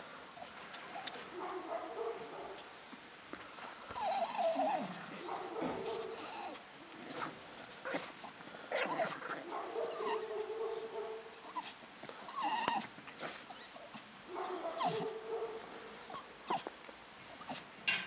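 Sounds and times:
dog whining: 0:03.9 - 0:06.6, 0:09.8 - 0:10.4, 0:11.5 - 0:15.2, 0:16.1 - 0:17.7
dog yapping: 0:04.0 - 0:07.2, 0:08.8 - 0:11.7, 0:12.3 - 0:16.7.

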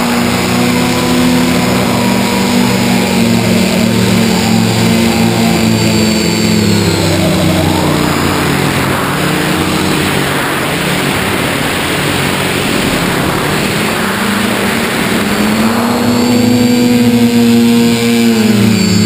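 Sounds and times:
electric motors and propellers: 0:00.0 - 0:19.0
wind rush over microphone: 0:06.6 - 0:19.0.

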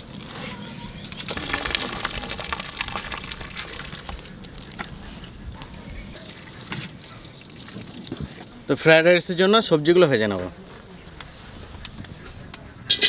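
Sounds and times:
water boiling and bubbling: 0:00.0 - 0:08.7.

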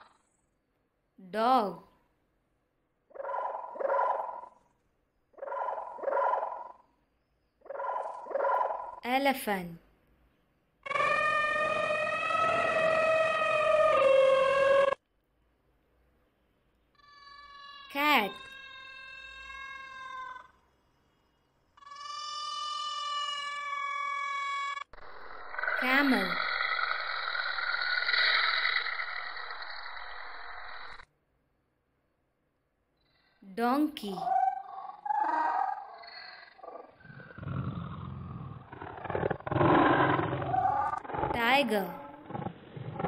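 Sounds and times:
cat meowing: 0:18.4 - 0:20.6.

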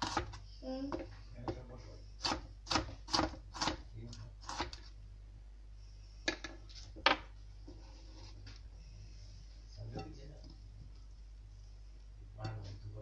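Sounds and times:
knife chopping on cutting board: 0:01.4 - 0:03.8.

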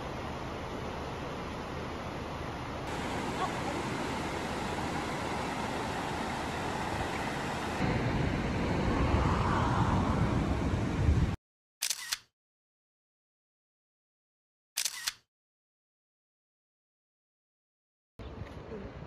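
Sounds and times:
river rushing over rapids: 0:02.8 - 0:08.0
deep outdoor rumble: 0:07.8 - 0:11.4.

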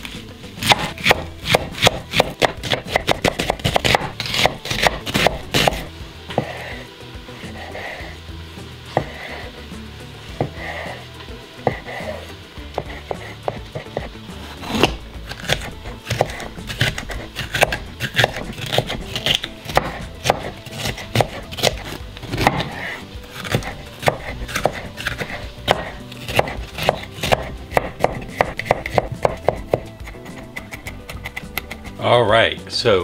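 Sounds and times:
knife chopping vegetables: 0:00.0 - 0:06.8, 0:08.9 - 0:09.4, 0:10.2 - 0:11.0, 0:11.6 - 0:32.0
background music: 0:00.0 - 0:33.0.

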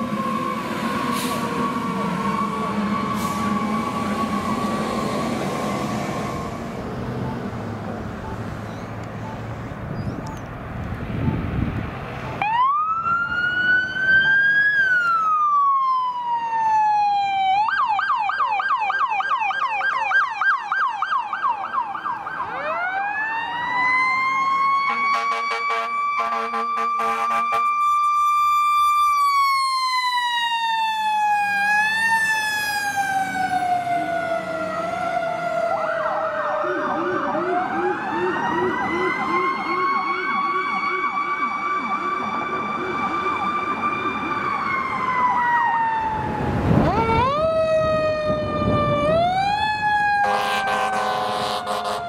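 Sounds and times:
siren wailing and yelping: 0:00.0 - 0:09.5, 0:12.4 - 0:52.0
low buzzing horn: 0:24.9 - 0:27.9, 0:50.2 - 0:52.0.

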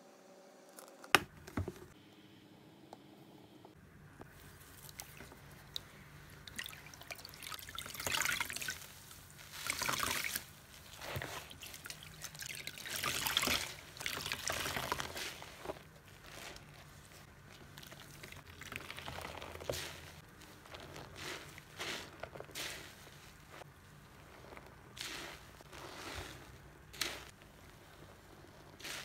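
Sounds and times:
sponge squelching: 0:04.2 - 0:29.0
water pouring into basin: 0:04.8 - 0:08.8, 0:09.5 - 0:10.4, 0:11.3 - 0:15.1.

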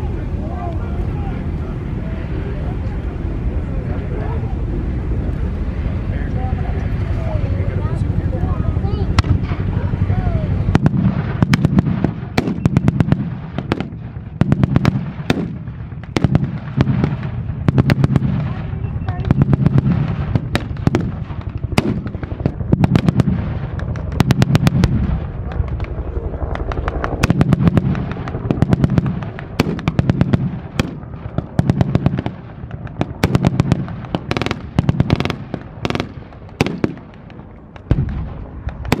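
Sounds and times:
low rumble: 0:00.0 - 0:39.0
gunfire single shots: 0:10.7 - 0:18.6, 0:27.2 - 0:39.0.

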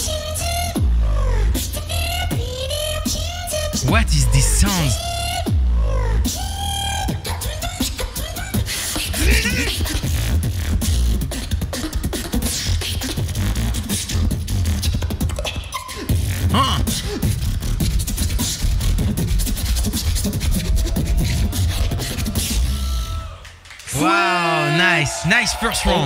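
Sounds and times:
person beatboxing: 0:03.8 - 0:05.0, 0:08.9 - 0:10.2, 0:16.4 - 0:20.6.

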